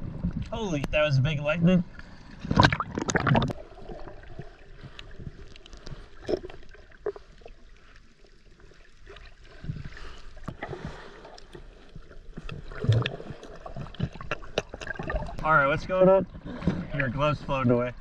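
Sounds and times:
muffled underwater water movement: 0:00.0 - 0:18.0
small underwater clicks: 0:11.3 - 0:15.5.

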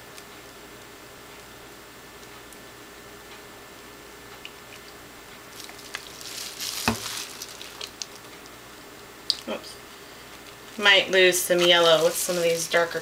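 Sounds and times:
plastic crinkling: 0:05.5 - 0:08.3, 0:10.3 - 0:13.0.

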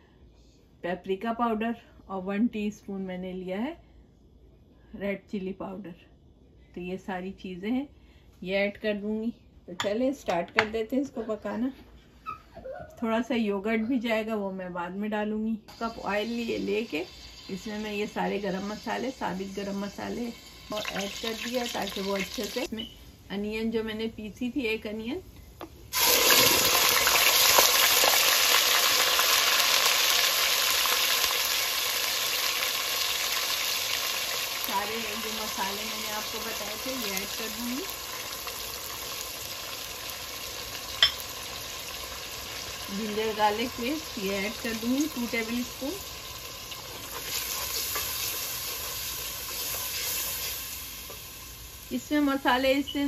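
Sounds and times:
onion paste sizzling in oil: 0:15.7 - 0:23.2, 0:24.0 - 0:53.0
wooden spatula stirring: 0:46.8 - 0:50.5.

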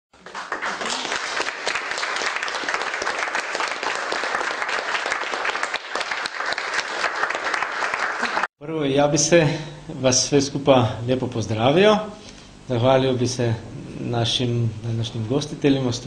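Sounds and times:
audience applauding: 0:00.2 - 0:08.5.

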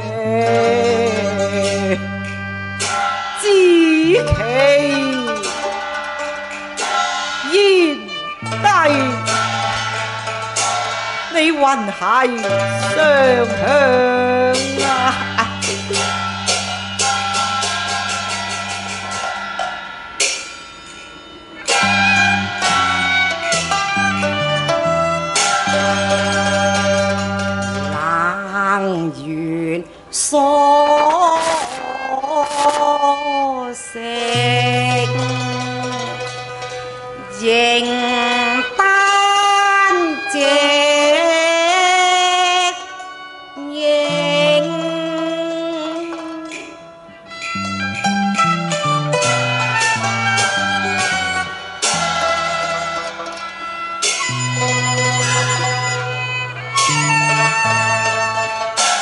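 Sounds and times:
woman singing opera-style song: 0:00.0 - 0:02.0, 0:03.4 - 0:05.4, 0:11.4 - 0:15.5, 0:28.0 - 0:36.2, 0:37.3 - 0:42.9, 0:43.6 - 0:46.8
instrumental ensemble playing: 0:00.0 - 0:28.2, 0:30.8 - 0:59.0
percussion strokes: 0:00.0 - 0:59.0.

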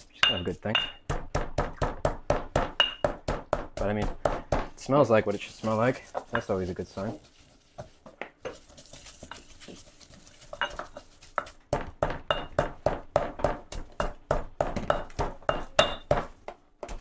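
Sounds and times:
stone pestle pounding in mortar: 0:00.2 - 0:04.9, 0:10.6 - 0:17.0.

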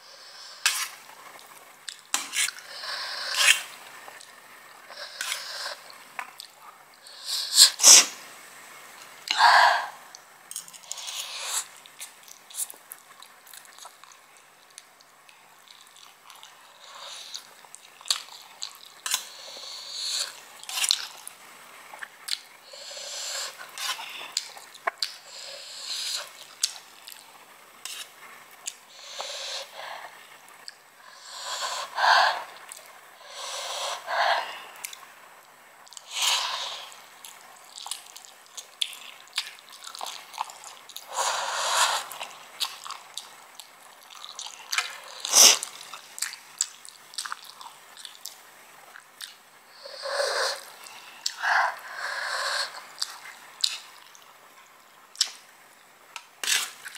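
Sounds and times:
wet chewing and mouth smacks: 0:10.1 - 0:19.3, 0:22.0 - 0:22.5, 0:23.8 - 0:25.2, 0:35.8 - 0:36.1, 0:37.2 - 0:41.1, 0:42.0 - 0:49.4, 0:52.8 - 0:54.3, 0:55.1 - 0:55.4
noodle slurps: 0:44.1 - 0:46.0.

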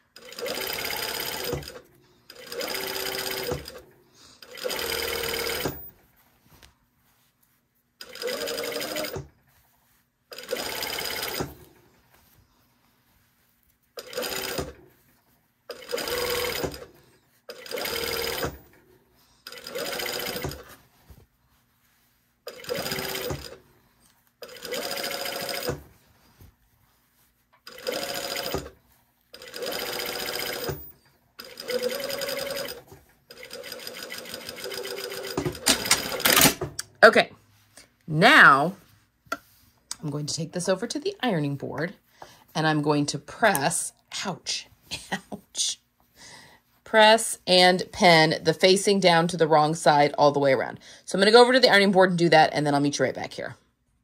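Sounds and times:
sewing machine stitching: 0:00.1 - 0:05.9, 0:08.0 - 0:09.3, 0:10.3 - 0:11.7, 0:14.0 - 0:14.9, 0:15.7 - 0:16.9, 0:17.5 - 0:18.8, 0:19.4 - 0:20.7, 0:22.5 - 0:23.6, 0:24.4 - 0:25.9, 0:27.6 - 0:36.8.

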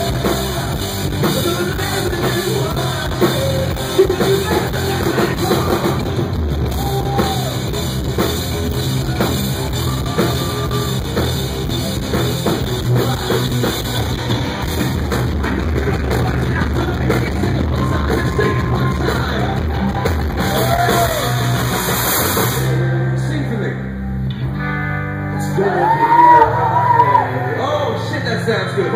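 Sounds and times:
sung vocal: 0:00.0 - 0:06.1, 0:15.8 - 0:20.0
drum kit: 0:00.0 - 0:22.9
bass guitar: 0:00.0 - 0:28.9
electric guitar: 0:00.0 - 0:28.9.

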